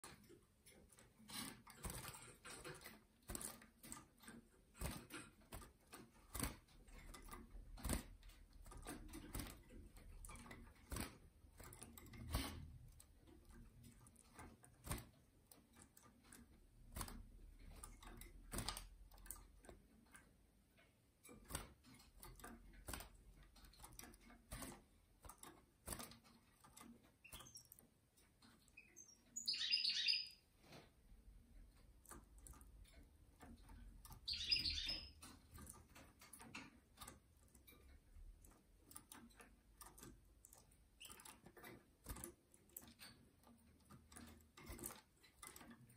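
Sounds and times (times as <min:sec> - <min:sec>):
bird chirping call: 0:28.8 - 0:30.4, 0:34.3 - 0:35.2.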